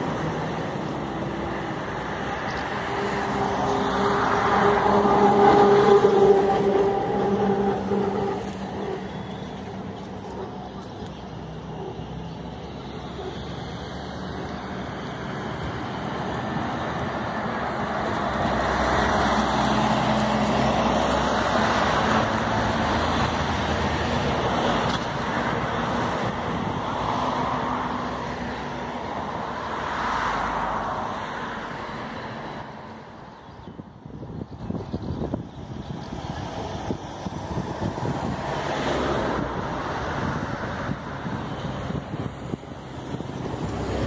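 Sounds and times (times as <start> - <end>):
road traffic passing: 0.0 - 44.0.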